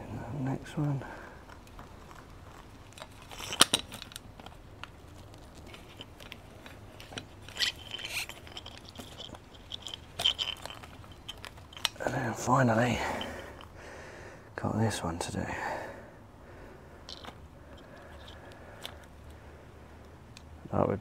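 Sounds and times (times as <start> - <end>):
plastic clicks and crackles: 1.4 - 12.1.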